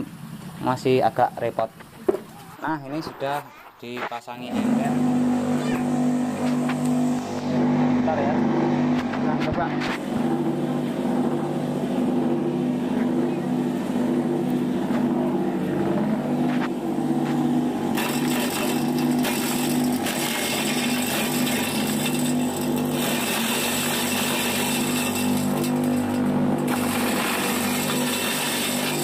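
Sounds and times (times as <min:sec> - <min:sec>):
motor humming: 0:04.4 - 0:29.0
blade chopping cabbage: 0:15.8 - 0:29.0.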